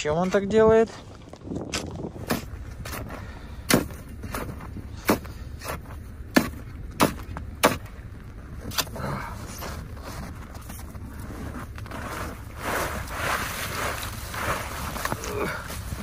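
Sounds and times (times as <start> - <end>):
ice chisel chopping ice: 3.7 - 7.9.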